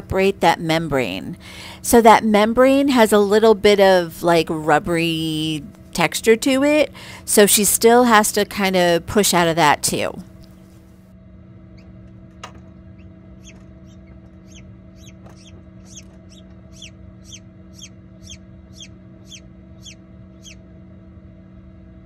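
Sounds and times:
chick peeping: 13.0 - 20.6.

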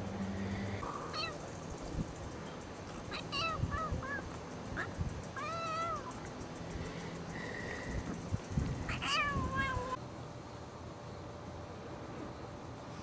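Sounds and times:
kitten meowing: 1.1 - 1.4, 8.9 - 10.0.

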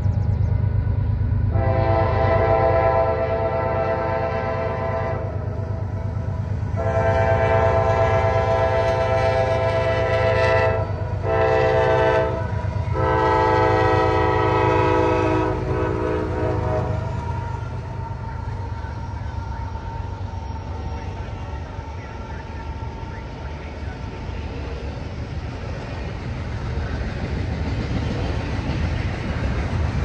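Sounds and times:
low rumble of passing train: 0.0 - 30.0
train air horn blasts: 1.5 - 5.4, 6.7 - 18.0.

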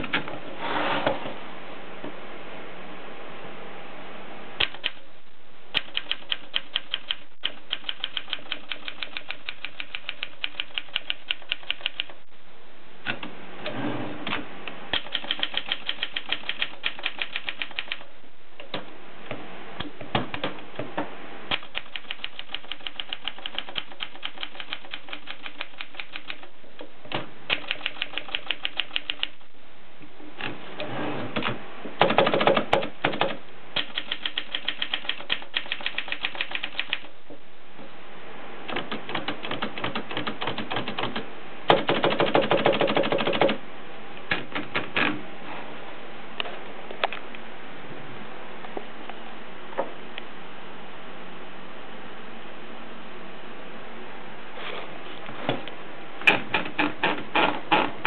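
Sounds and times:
typewriter keys clacking: 5.8 - 12.2, 14.9 - 18.1, 21.5 - 26.5, 27.5 - 29.4, 32.0 - 37.1, 38.7 - 43.6.

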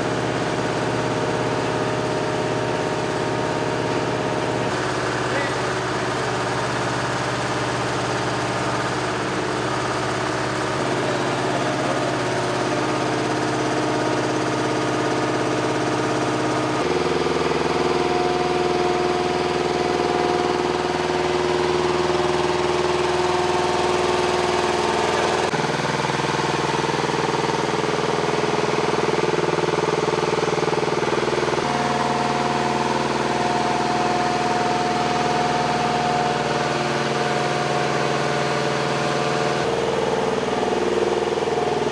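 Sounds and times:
lift truck engine running: 0.0 - 41.9.

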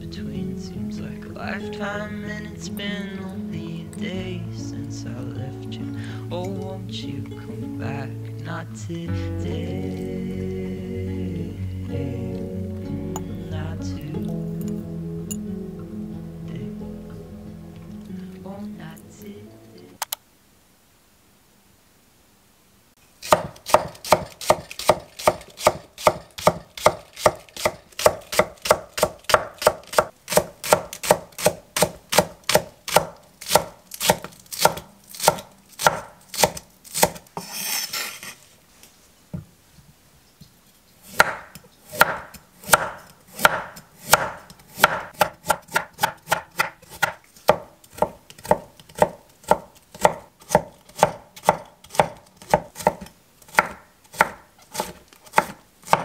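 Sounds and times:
cleaver chopping on wooden board: 23.3 - 37.5, 41.1 - 56.0
short rustling scrape: 37.4 - 39.2.

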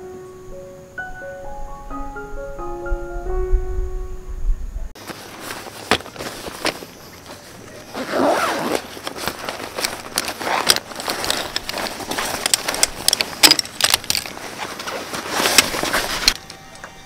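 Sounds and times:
nylon rustling: 5.0 - 16.4
folding poles clicking and rattling: 5.0 - 17.0
zipper pulled open: 7.9 - 13.6, 14.3 - 16.4.

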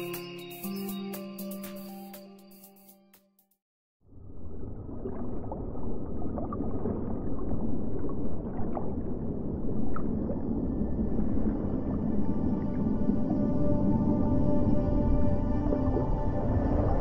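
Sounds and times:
muffled underwater rush: 4.1 - 17.0
underwater clicks and gurgles: 4.3 - 14.2.

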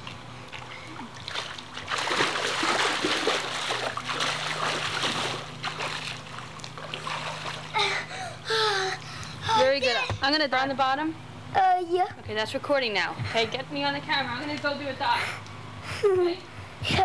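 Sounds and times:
water splashing in pool: 1.2 - 7.8.

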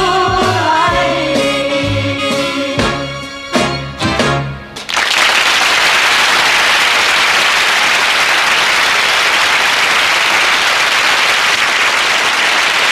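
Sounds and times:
audience applauding: 4.8 - 12.9.

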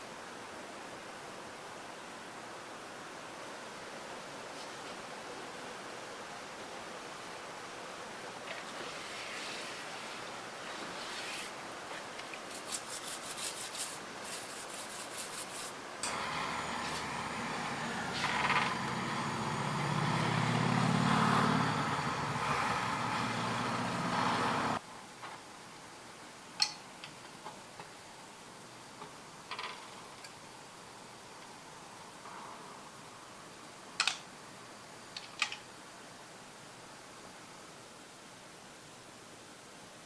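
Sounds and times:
brush scrubbing metal in liquid: 12.5 - 15.8.

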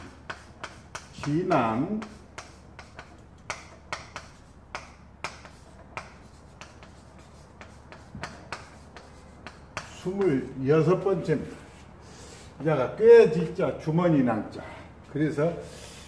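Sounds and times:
chalk tapping on chalkboard: 0.0 - 10.6.

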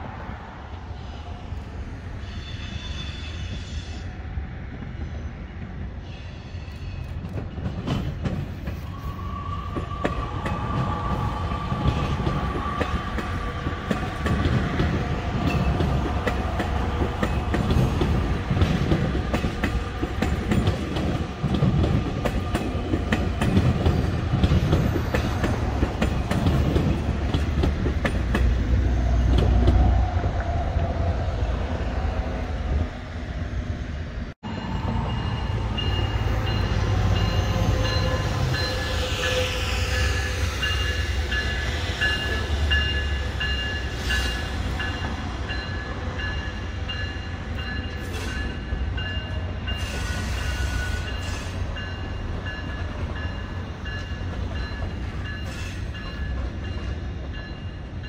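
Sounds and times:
train wheels clicking over rail joints: 6.7 - 9.0, 9.6 - 30.3.

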